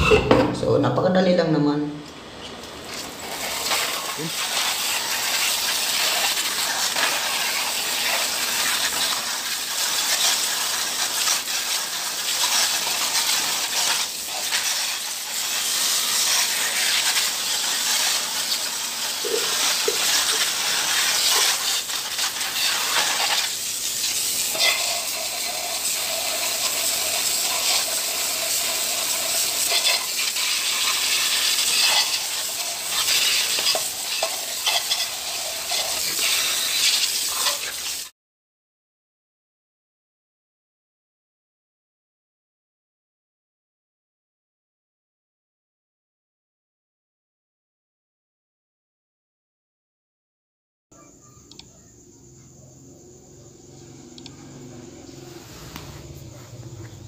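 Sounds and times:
hose water spraying: 2.5 - 38.1, 53.7 - 57.0.

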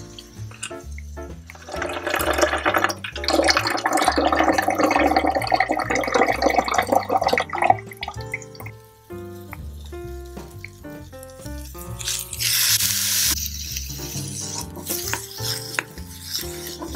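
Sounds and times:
tap water splashing into sink: 1.5 - 8.8.

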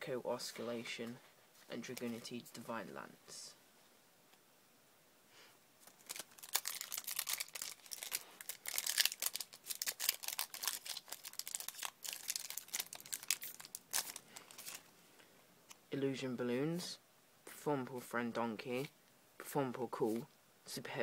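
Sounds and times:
foil wrapper crinkling and tearing: 5.8 - 14.8.

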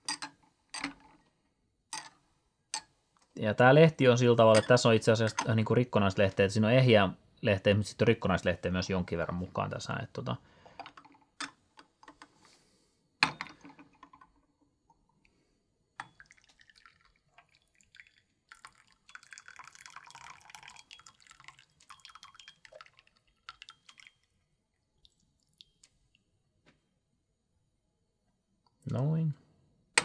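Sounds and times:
tea trickling into cups: 4.0 - 6.6, 16.0 - 26.3
porcelain clink: 4.5 - 5.5, 21.9 - 22.9
water dripping: 16.0 - 26.3.

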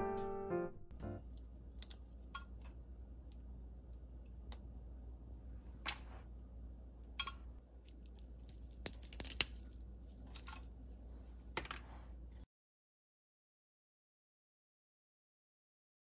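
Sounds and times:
stems snapping: 8.4 - 9.6.

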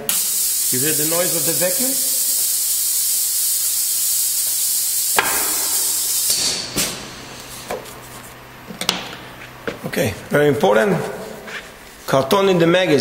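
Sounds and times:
loud hiss of vacuum system: 0.0 - 7.6
sharp knock: 5.2 - 5.8.

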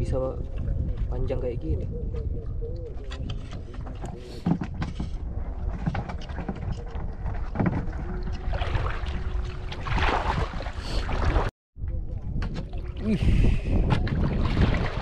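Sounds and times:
water splashing and bubbling: 2.1 - 15.0
low underwater rumble: 4.8 - 15.0.

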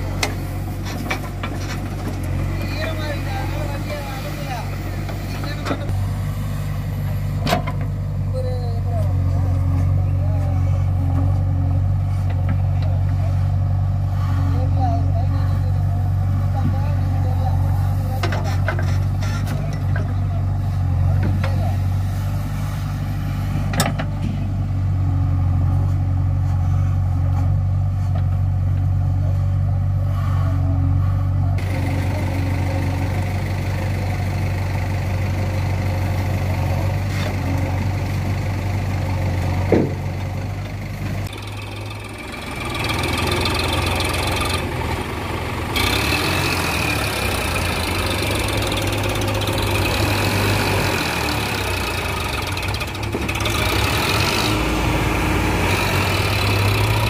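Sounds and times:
diesel engines running: 0.0 - 57.0.

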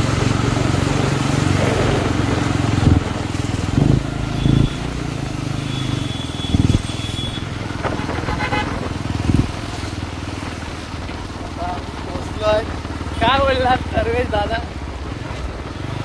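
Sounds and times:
motorcycle engine and road rumble: 0.0 - 16.0
vehicle horn toot: 4.3 - 5.0, 5.6 - 8.9.

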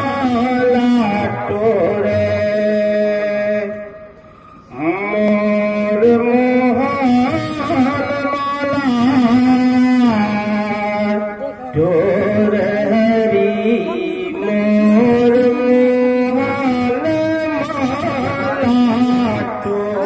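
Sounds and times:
harmonium: 0.0 - 20.0.

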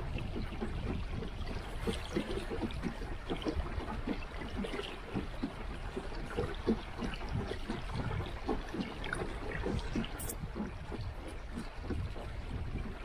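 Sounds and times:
water lapping against boat: 0.0 - 13.0.

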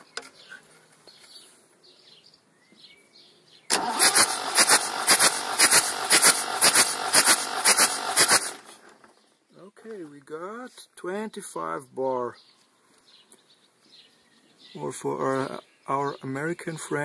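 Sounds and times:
diesel engine cranking on starter: 3.7 - 9.1.

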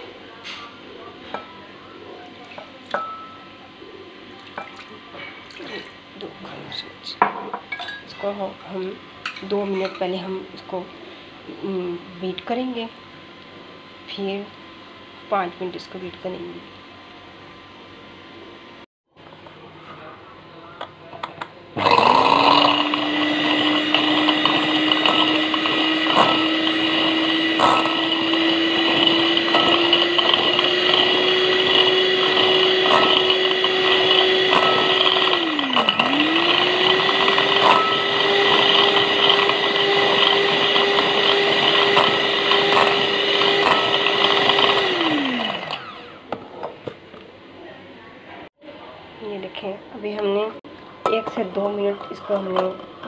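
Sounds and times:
electric hand mixer whining: 21.8 - 46.3.

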